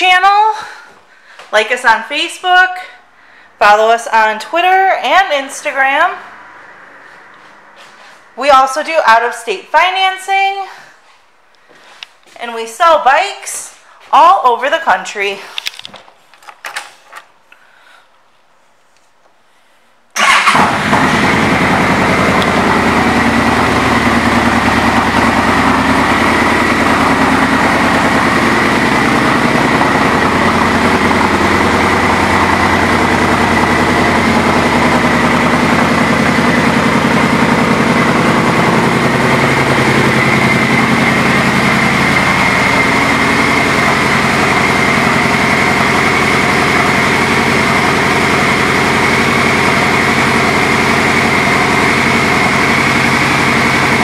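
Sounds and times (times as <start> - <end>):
motorcycle engine idling: 20.2 - 54.0.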